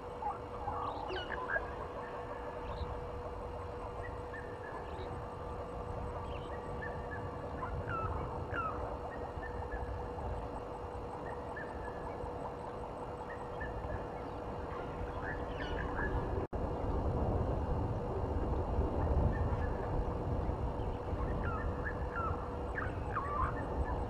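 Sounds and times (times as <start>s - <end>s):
low rumbling background: 0.0s - 24.0s
steady low hum: 0.0s - 24.0s
birds chirping: 0.2s - 10.2s, 11.2s - 16.4s.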